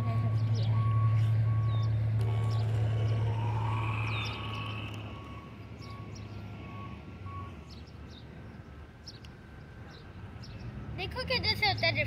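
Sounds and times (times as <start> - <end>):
steady low hum: 0.2 - 6.7
faint pulsed beeping: 0.2 - 7.6
electric motor whine: 2.2 - 5.7.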